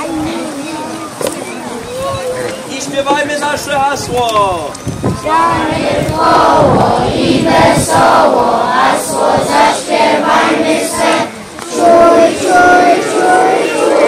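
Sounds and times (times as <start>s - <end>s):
children singing together: 5.2s - 14.0s.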